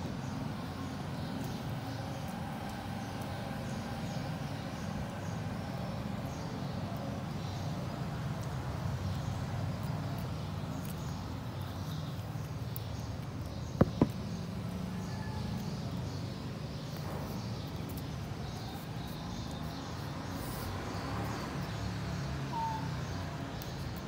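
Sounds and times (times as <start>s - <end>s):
sharp knocks: 13.8s - 14.2s.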